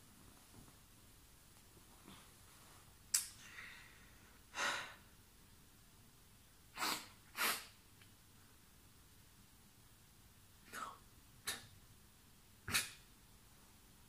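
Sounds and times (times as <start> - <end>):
person sniffing and breathing: 6.8 - 7.7.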